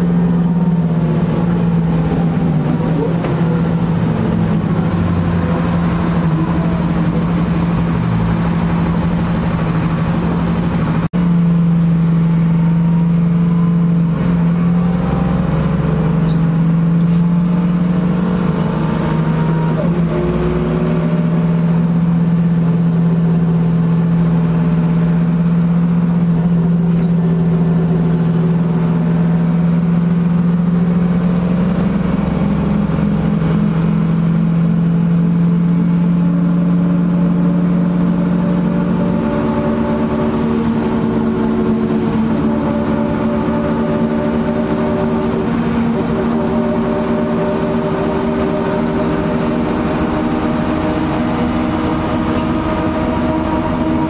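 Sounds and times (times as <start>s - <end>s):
bus engine droning: 0.0s - 54.0s
road and cabin noise: 0.0s - 54.0s
faint rising whines: 33.3s - 54.0s.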